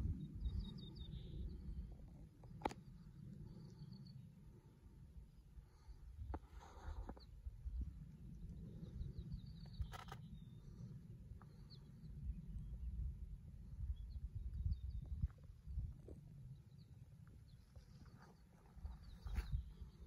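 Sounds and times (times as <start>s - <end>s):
wind buffeting microphone: 0.0s - 2.8s, 11.5s - 16.4s, 18.8s - 20.0s
faint bird chirps: 8.4s - 13.0s.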